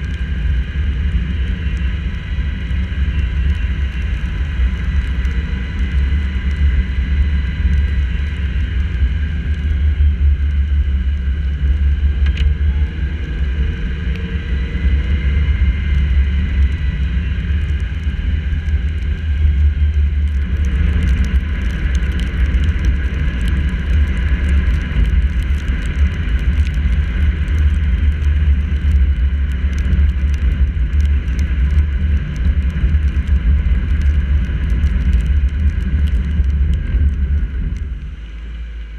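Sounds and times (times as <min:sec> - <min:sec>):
raindrops ticking on camera: 0:00.0 - 0:38.9
wind and road noise rumble: 0:00.0 - 0:38.9.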